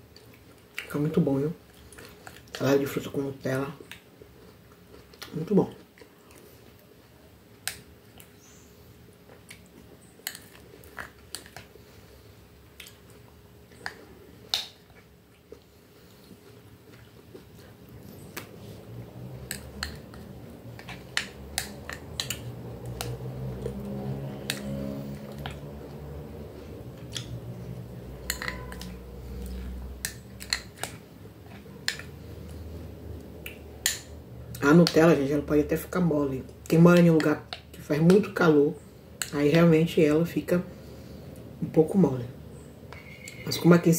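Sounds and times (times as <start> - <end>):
soft chewing: 0.0 - 2.8, 3.7 - 35.0
low droning hum: 8.4 - 43.5
spoon scraping glass bowl: 28.2 - 29.0.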